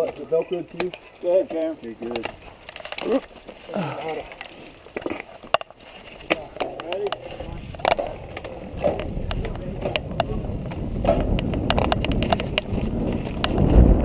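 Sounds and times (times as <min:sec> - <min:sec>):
bike frame clattering: 0:00.0 - 0:13.7
bike tyres rumbling on dirt: 0:00.0 - 0:14.0
wind noise on microphone: 0:07.2 - 0:14.0.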